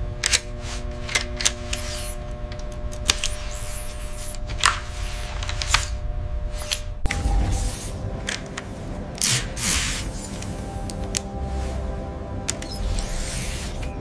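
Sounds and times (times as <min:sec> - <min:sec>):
steady low hum: 0:00.0 - 0:14.0
held tones: 0:01.1 - 0:09.1
short hissing sweeps: 0:03.2 - 0:05.8, 0:06.5 - 0:08.1, 0:12.7 - 0:13.9.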